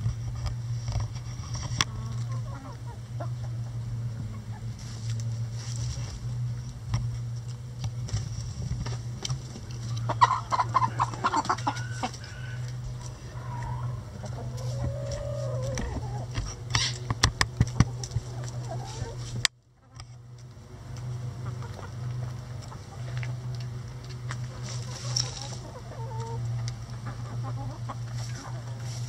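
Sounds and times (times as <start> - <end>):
hens clucking: 1.3 - 5.8, 9.0 - 29.0
beaks pecking cabbage: 7.5 - 29.0
hen drawn-out call: 9.9 - 17.0, 17.9 - 19.3.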